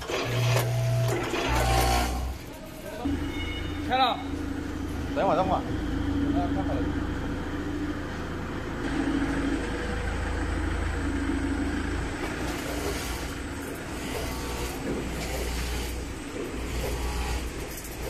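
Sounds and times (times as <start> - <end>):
machine motor hum: 4.3 - 18.0.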